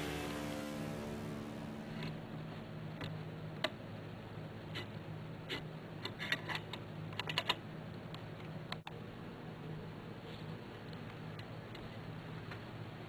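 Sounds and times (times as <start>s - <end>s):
low steady hum: 0.0s - 6.1s.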